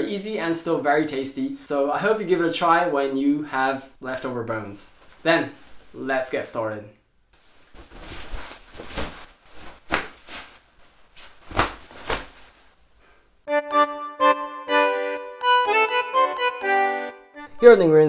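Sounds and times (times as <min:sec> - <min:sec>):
fabric swishing and rustling: 0:05.0 - 0:06.0, 0:07.3 - 0:13.2
instrumental music with sustained chords: 0:13.5 - 0:18.0.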